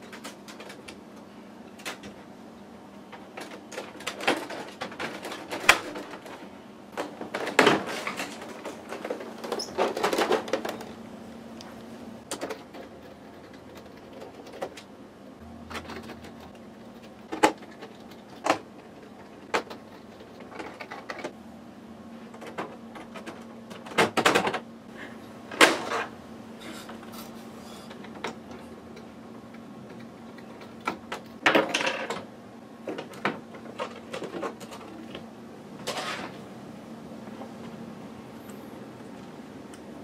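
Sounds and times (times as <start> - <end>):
clicks and plastic clatters: 0.0 - 2.3, 3.0 - 11.0, 11.6 - 14.9, 15.7 - 21.4, 22.3 - 24.6, 27.9 - 36.4.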